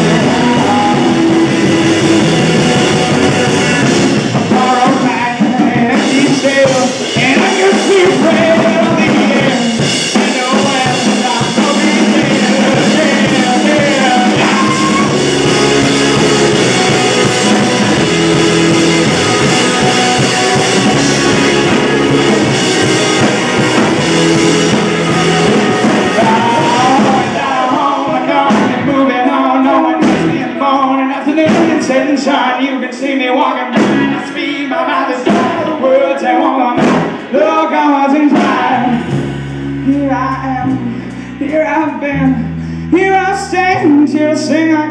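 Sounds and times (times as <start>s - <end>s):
person singing: 0.0s - 39.2s, 39.8s - 44.9s
live rock band playing: 0.0s - 44.9s.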